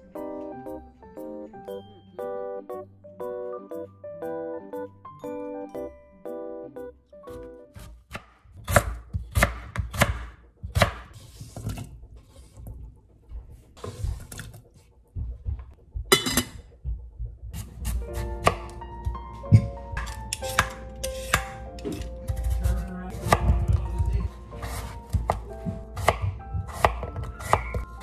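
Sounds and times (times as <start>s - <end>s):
soft background music: 0.0s - 28.0s
knife chopping on wooden board: 7.8s - 11.1s, 19.6s - 27.9s.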